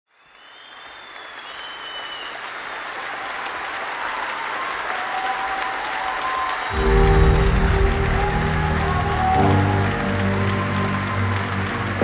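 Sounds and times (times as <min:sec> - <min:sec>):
crowd applauding and cheering: 0:00.1 - 0:12.0
high whistle: 0:00.2 - 0:02.4.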